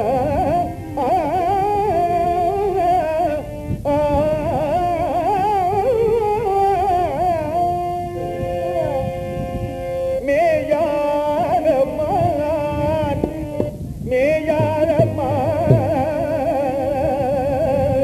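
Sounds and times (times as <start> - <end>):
sustained accompaniment: 0.0 - 18.0
low drum strokes: 14.6 - 16.3.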